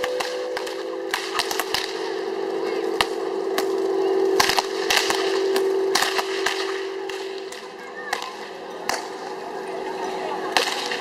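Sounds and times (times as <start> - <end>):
hum of close tones: 0.0 - 11.0
whips cracking against tops: 4.4 - 9.2.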